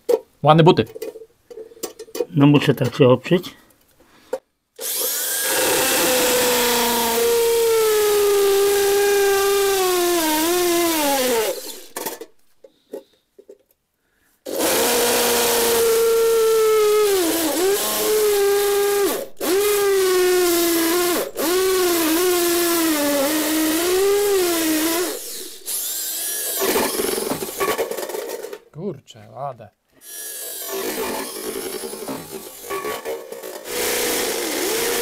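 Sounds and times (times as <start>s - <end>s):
electric drill boring into metal: 4.8s - 12.3s, 14.5s - 28.3s, 30.0s - 35.0s.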